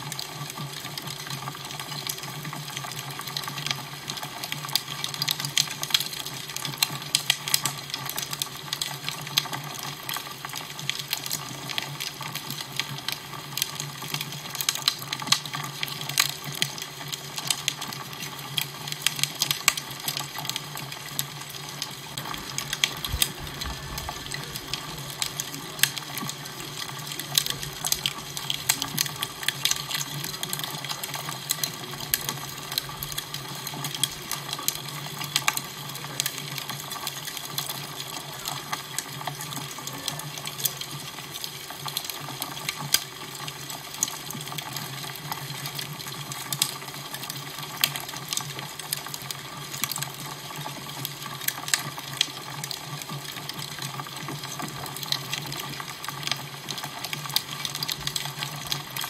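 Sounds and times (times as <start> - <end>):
fire crackling: 0.1 - 59.0
low steady hum: 22.0 - 31.0.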